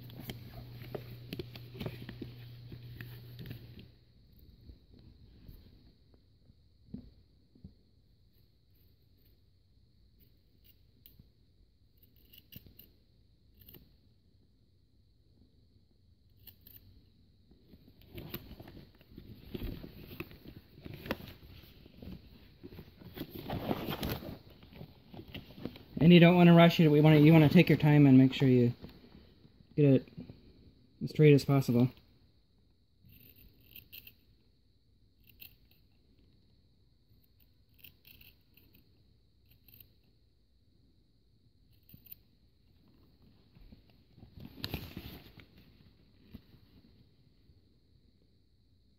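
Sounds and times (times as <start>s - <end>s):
rubber rustling and crackling: 18.0s - 26.0s.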